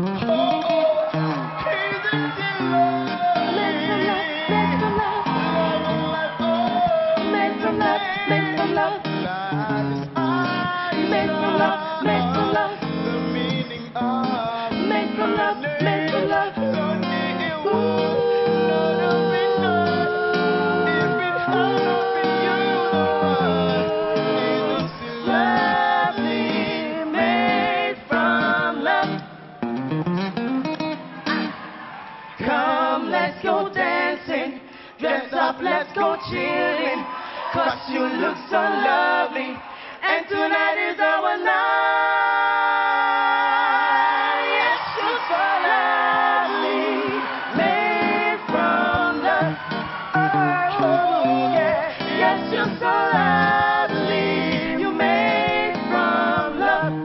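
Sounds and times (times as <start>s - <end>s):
vocal trio singing in harmony: 0.0s - 29.8s, 31.2s - 57.0s.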